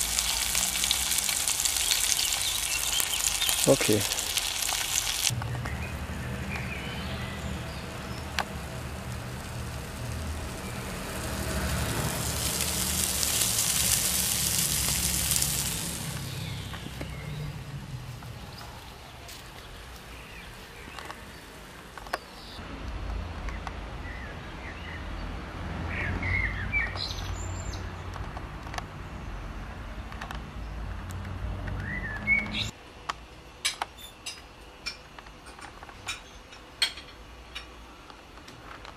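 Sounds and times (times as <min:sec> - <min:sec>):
meat patties sizzling: 0:00.0 - 0:05.4, 0:06.0 - 0:21.8
steady low rumble: 0:05.3 - 0:19.2.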